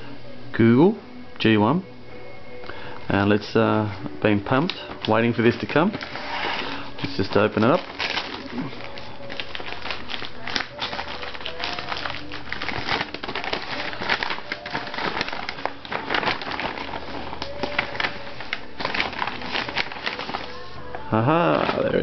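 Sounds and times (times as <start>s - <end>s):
plastic mailer crinkling: 4.6s - 20.8s.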